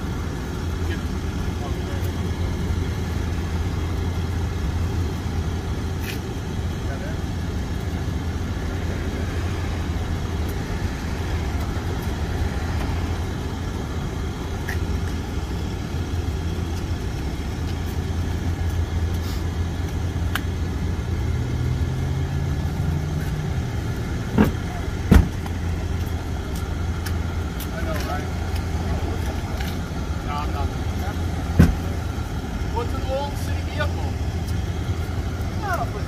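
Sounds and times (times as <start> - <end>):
vehicle engine idling: 0.0 - 36.0
sharp knocks: 24.4 - 25.5, 31.6 - 31.8.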